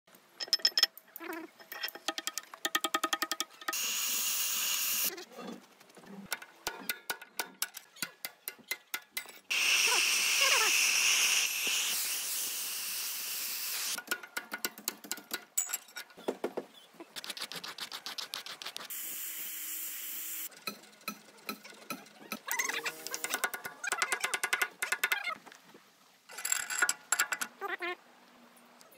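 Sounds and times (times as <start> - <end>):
gas cutting torch hissing: 3.8 - 5.1, 9.5 - 14.0.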